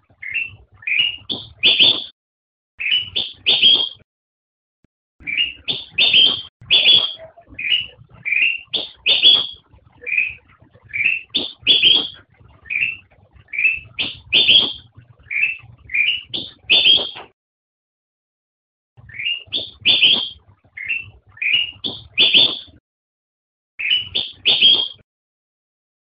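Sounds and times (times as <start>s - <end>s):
bird singing chirpy notes: 0.1s - 2.1s, 2.8s - 4.0s, 5.2s - 17.3s, 19.0s - 22.8s, 23.8s - 25.0s.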